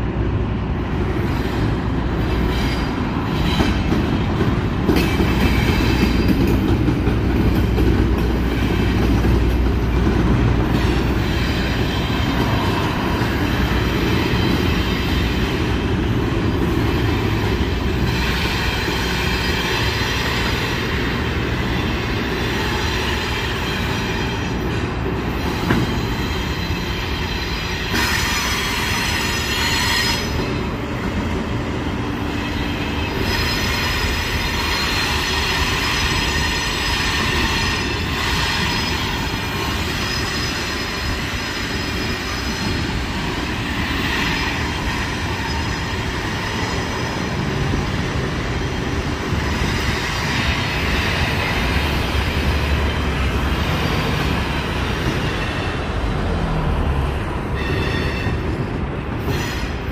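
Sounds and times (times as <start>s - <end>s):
freight train cars rumbling: 0.0s - 59.9s
wheels squealing on rails: 0.9s - 59.9s.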